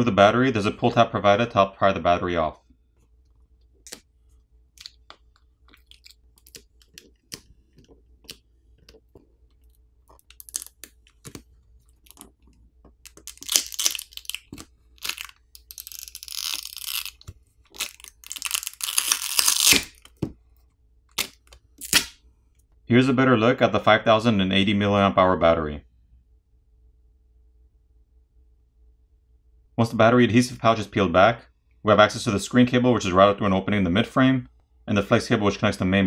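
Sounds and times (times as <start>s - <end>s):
adhesive crackling and tearing: 4.8s - 20.2s, 21.1s - 22.2s.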